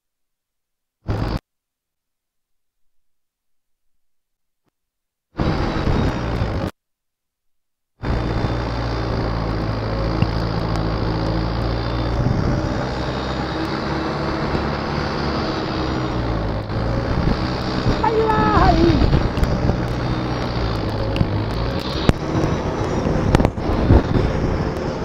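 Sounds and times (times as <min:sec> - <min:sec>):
tractor engine running under load: 0:08.0 - 0:25.0.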